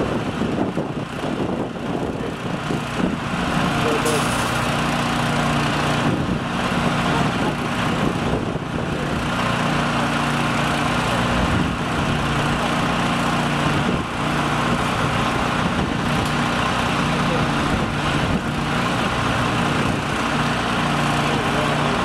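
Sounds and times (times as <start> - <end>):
engine running steadily: 0.0 - 22.0.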